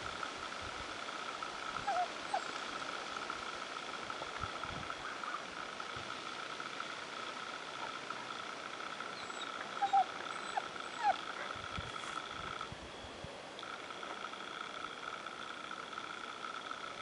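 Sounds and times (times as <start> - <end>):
high pulsing trill of night animals: 0.0 - 17.0
short squeaky animal calls: 1.8 - 2.6, 9.1 - 12.3.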